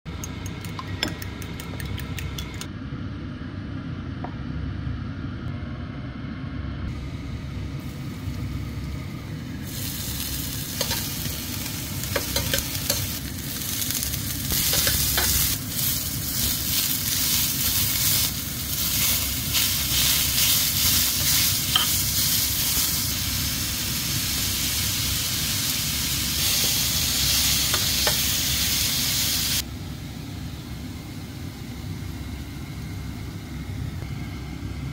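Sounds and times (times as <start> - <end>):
food sizzling in frying pan: 7.8 - 29.6.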